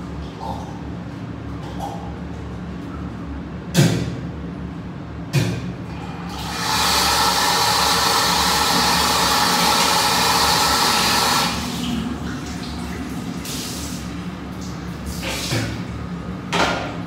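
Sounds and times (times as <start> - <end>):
tap water running into sink: 6.3 - 15.9.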